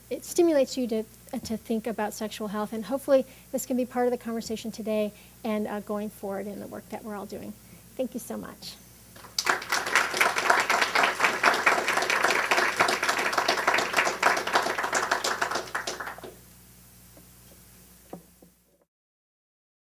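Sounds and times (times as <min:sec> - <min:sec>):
audience applauding: 0:09.2 - 0:16.4.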